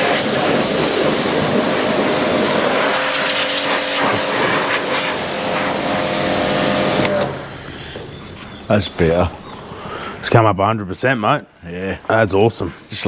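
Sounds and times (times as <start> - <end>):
pressure washer spraying water: 0.0 - 8.2.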